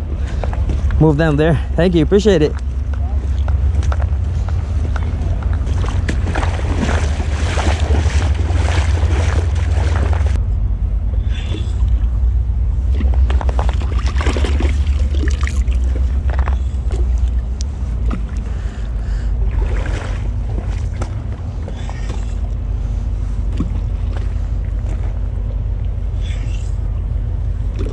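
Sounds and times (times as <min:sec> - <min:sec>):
creek water splashing: 0:02.5 - 0:10.4, 0:12.9 - 0:18.8, 0:19.4 - 0:22.2.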